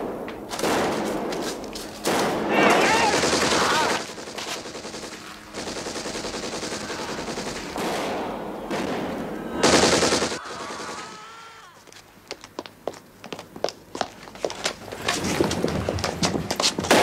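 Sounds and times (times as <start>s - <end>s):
machine gun firing bursts: 2.0s - 11.2s.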